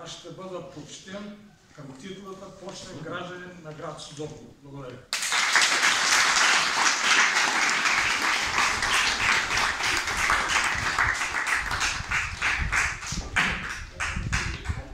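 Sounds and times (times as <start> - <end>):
audience applauding: 5.1 - 14.9.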